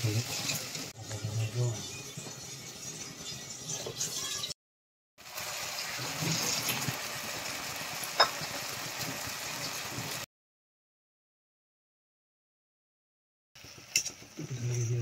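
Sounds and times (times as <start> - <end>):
frying hiss in a pan: 0.0 - 4.5, 5.2 - 10.3, 13.6 - 15.0.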